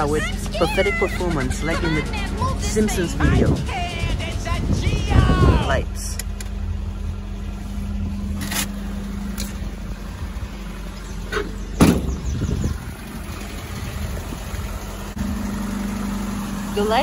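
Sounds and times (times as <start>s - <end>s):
car engine idling: 0.0s - 17.0s
loud knock: 11.8s - 12.2s.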